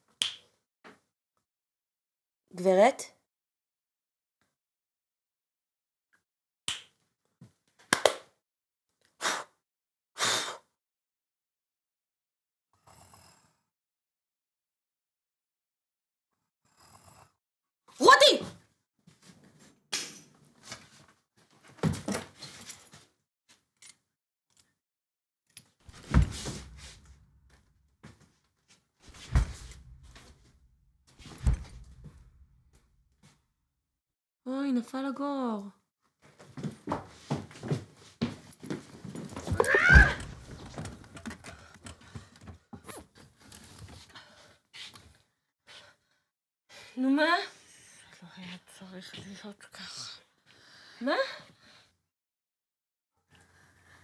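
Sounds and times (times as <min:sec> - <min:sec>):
fingers snapping: 0:00.2 - 0:00.4.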